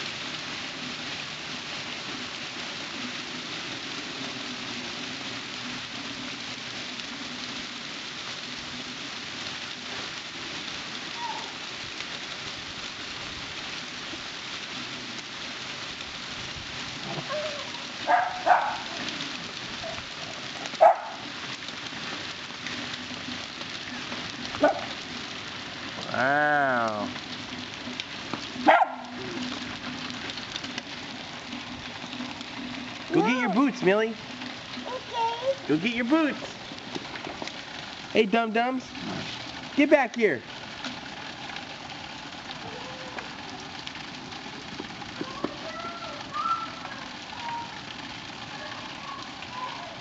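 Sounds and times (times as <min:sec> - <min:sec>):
hail and rain pelting concrete: 0:00.0 - 0:50.0
dog barking: 0:17.1 - 0:19.1, 0:20.7 - 0:21.3, 0:24.6 - 0:25.0, 0:28.6 - 0:29.2.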